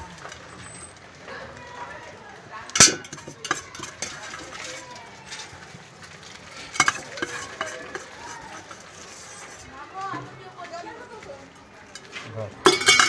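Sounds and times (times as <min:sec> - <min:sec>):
metal clinks in steel tin: 0:02.8 - 0:04.8, 0:06.7 - 0:08.8, 0:12.6 - 0:13.0.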